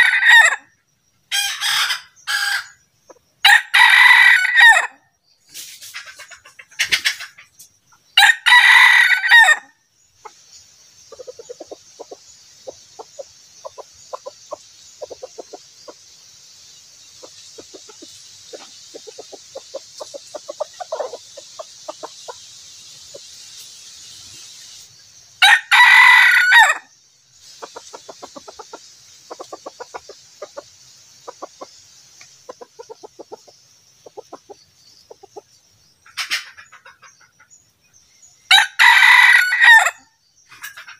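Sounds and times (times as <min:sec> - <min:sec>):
rooster crowing: 0:03.4 - 0:05.0, 0:08.2 - 0:09.7, 0:25.4 - 0:26.9, 0:38.5 - 0:40.0.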